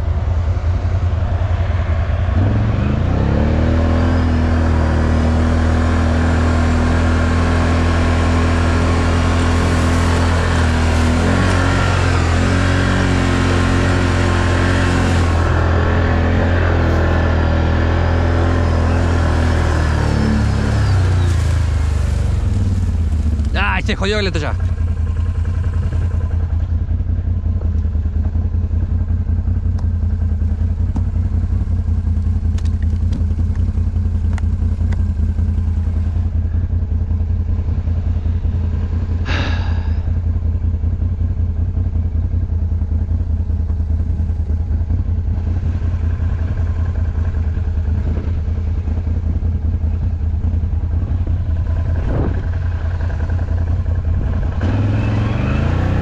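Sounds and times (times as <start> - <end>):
off-road vehicle engine running: 0.0 - 56.0.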